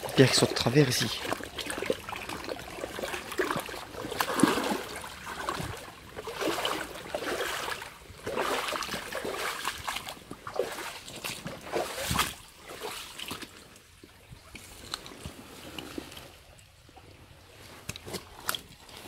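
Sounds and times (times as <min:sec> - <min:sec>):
water splashing from wading: 0:00.0 - 0:14.4.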